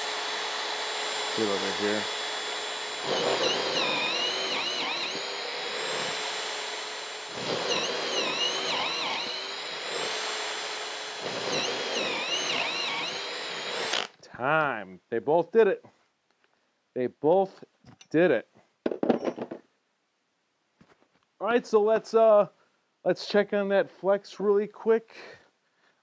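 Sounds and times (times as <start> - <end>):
hammer drill boring into wood: 0.0 - 14.2.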